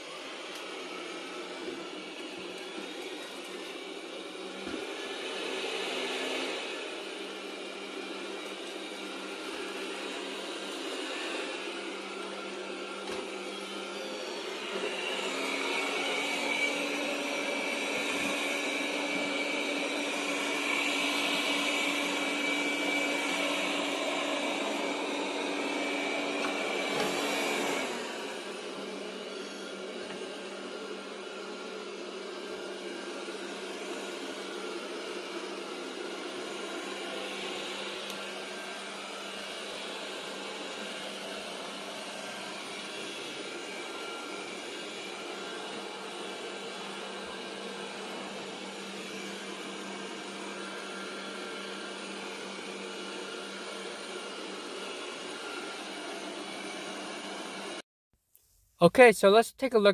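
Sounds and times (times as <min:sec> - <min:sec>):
robot vacuum whirring: 0:00.0 - 0:57.8.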